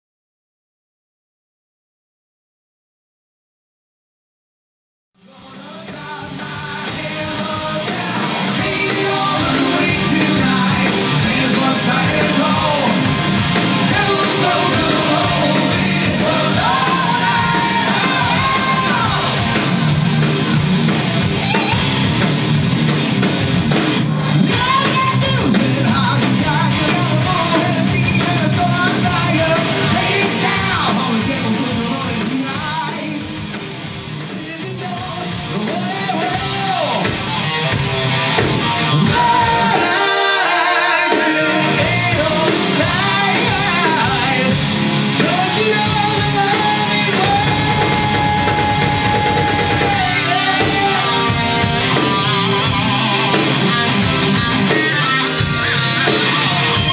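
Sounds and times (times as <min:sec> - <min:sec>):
bass: 0:05.2 - 0:56.9
drums: 0:05.2 - 0:56.9
electric guitars: 0:05.2 - 0:56.9
person singing and yelling: 0:05.3 - 0:13.2, 0:13.8 - 0:19.7, 0:21.2 - 0:22.2, 0:24.5 - 0:33.4, 0:38.9 - 0:44.6, 0:45.2 - 0:56.9.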